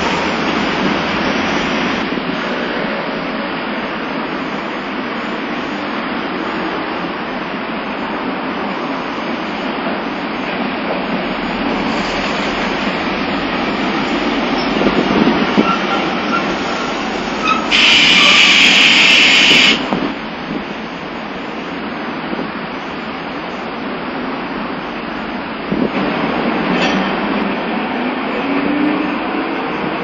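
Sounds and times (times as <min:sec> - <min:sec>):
streetcars rumbling on rails: 0:00.0 - 0:30.0
loud air hiss from tram: 0:11.4 - 0:21.8.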